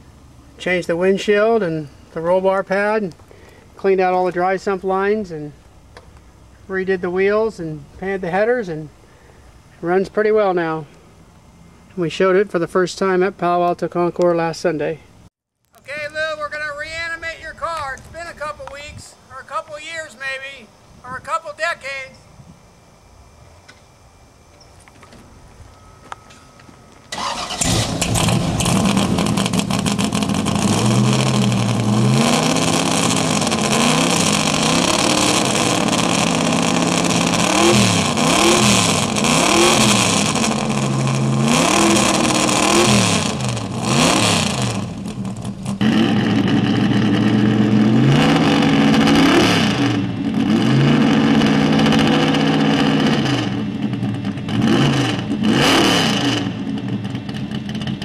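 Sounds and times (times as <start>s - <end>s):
race car engine revving: 27.2s - 58.0s.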